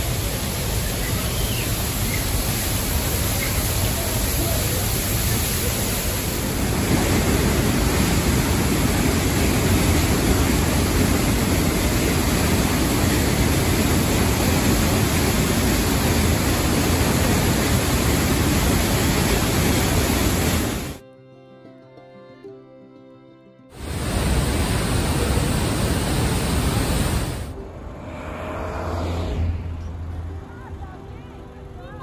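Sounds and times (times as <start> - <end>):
waterfall rushing: 0.0 - 21.0, 23.8 - 27.5.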